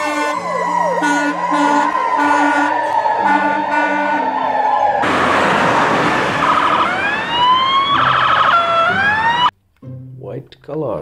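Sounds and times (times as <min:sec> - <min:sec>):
ambulance siren: 0:00.0 - 0:09.5
fire engine siren: 0:00.0 - 0:09.5
rushing noise: 0:01.3 - 0:09.3.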